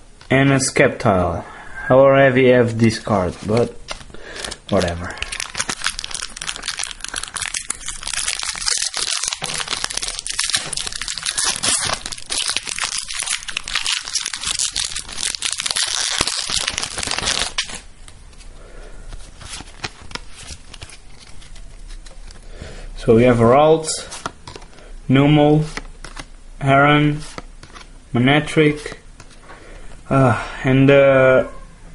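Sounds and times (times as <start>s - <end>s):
foil wrapper crinkling and tearing: 2.8s - 17.9s, 19.2s - 22.4s.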